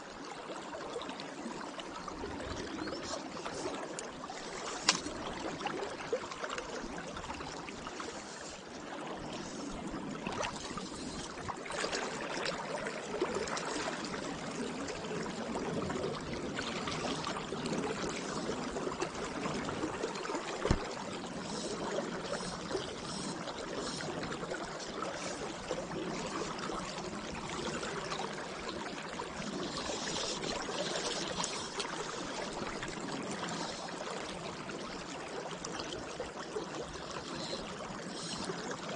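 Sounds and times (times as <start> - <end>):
river current flowing: 0.1 - 38.9.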